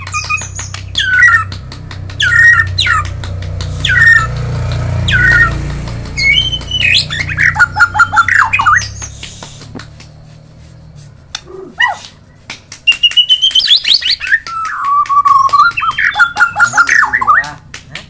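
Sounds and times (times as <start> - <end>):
bird singing whistled phrases: 0.0 - 1.5, 3.8 - 4.3, 5.1 - 5.5, 6.2 - 9.4, 12.9 - 17.5
sharp clicks: 0.0 - 10.2, 11.3 - 18.0.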